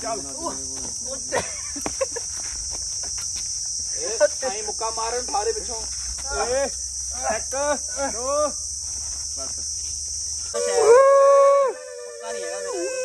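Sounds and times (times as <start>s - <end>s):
insect chorus drone: 0.0s - 13.0s
short rising and falling cries: 10.5s - 13.0s
loud held wail: 10.6s - 13.0s.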